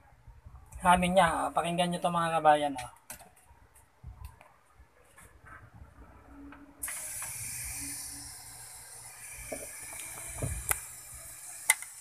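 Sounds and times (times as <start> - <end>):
amplifier hiss: 6.8 - 12.0.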